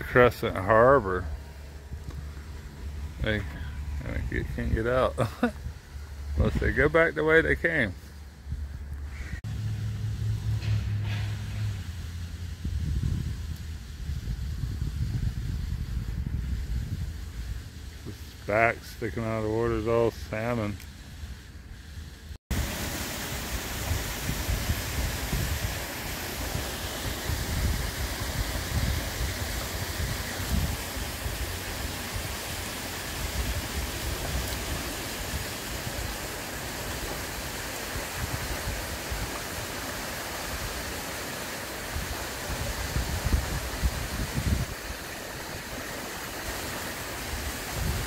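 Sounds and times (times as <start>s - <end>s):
steady rushing hiss: 0.0s - 48.0s
wind buffeting microphone: 12.5s - 17.8s, 23.7s - 32.4s, 42.0s - 45.1s, 47.3s - 48.0s.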